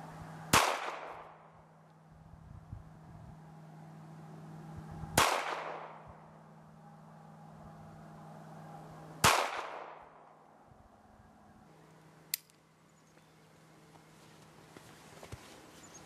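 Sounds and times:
pistol shots with echo: 0:00.5 - 0:01.5, 0:05.2 - 0:06.0, 0:09.2 - 0:10.2.

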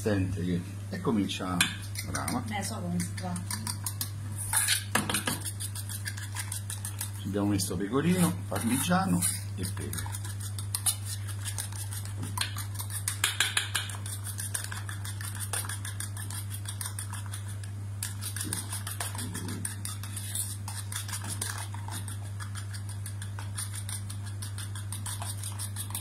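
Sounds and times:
fork beating eggs in bowl: 0:01.3 - 0:26.0.

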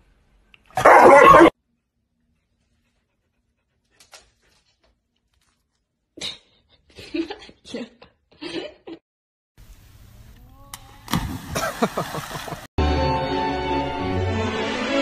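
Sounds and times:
small dog barking: 0:00.8 - 0:01.6.

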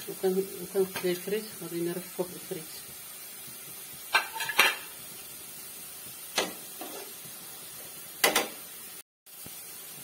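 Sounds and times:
metal spatula clinking on plate: 0:04.1 - 0:04.9.

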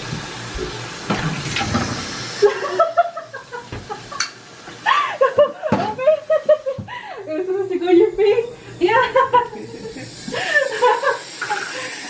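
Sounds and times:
aerosol can spraying: 0:09.8 - 0:12.0.

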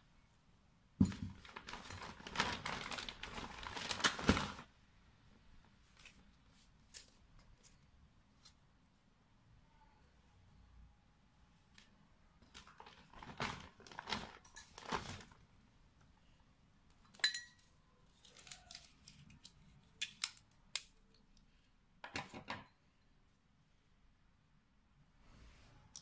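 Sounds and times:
packaging crinkling and rustling: 0:01.0 - 0:04.7, 0:12.4 - 0:15.4, 0:18.1 - 0:20.5
glass mug clinking: 0:17.2 - 0:17.6.

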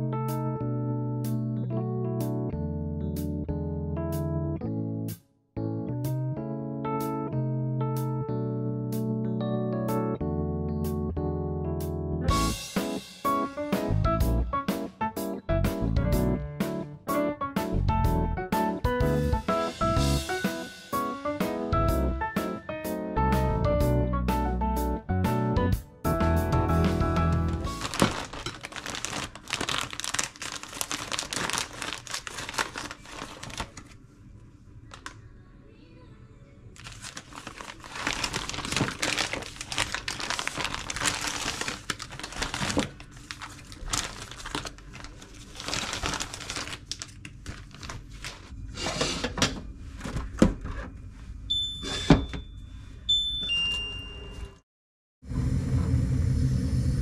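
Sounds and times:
plastic bags crinkling: 0:27.6 - 0:34.0, 0:36.8 - 0:48.5
short electronic beeps: 0:51.5 - 0:54.6.

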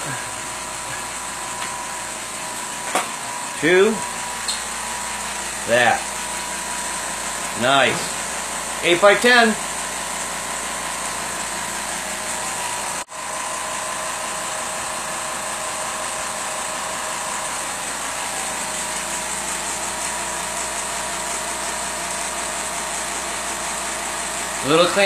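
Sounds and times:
laser engraver machine hum: 0:00.0 - 0:25.0.

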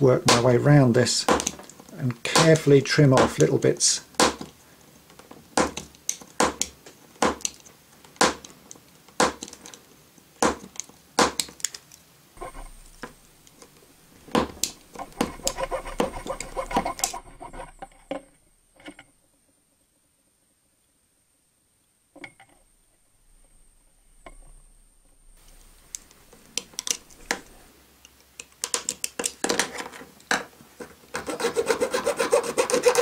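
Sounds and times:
craft knife cutting plastic: 0:10.4 - 0:18.3, 0:30.8 - 0:33.0.

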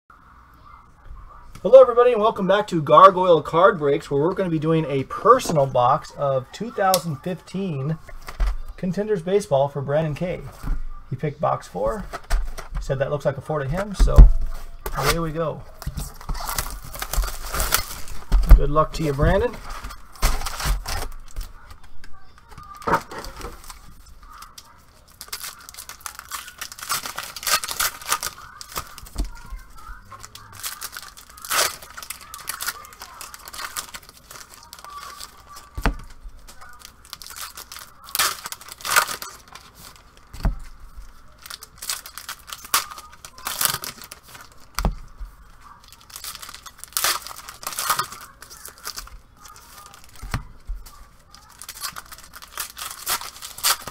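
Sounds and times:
foil wrappers ripping and crinkling: 0:10.1 - 0:53.9
cards being handled: 0:11.7 - 0:53.9.

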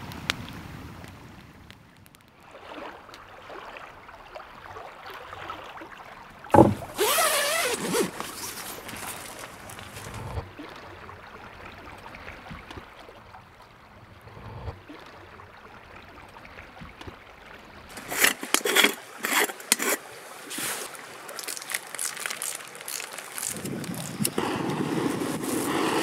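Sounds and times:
coffee packet crinkling: 0:07.4 - 0:10.1, 0:17.9 - 0:24.4.

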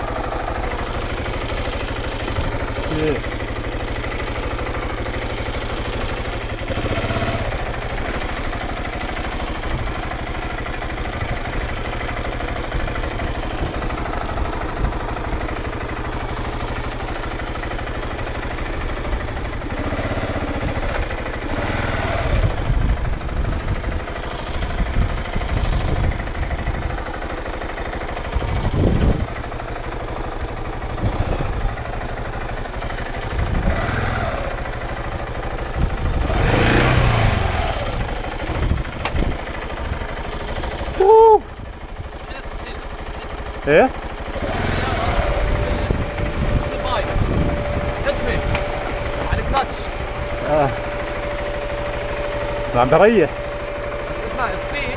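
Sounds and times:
motorcycle engine running at low revs: 0:00.0 - 0:54.9
heavy low thumps: 0:45.6 - 0:50.9.

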